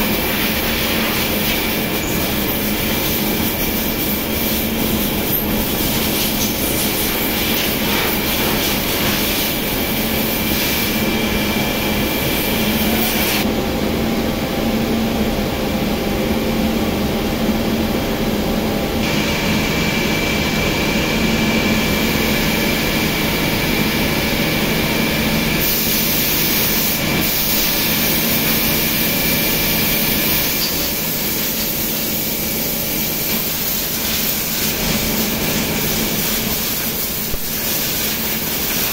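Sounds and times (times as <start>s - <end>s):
thin high whine: 0.0s - 16.3s.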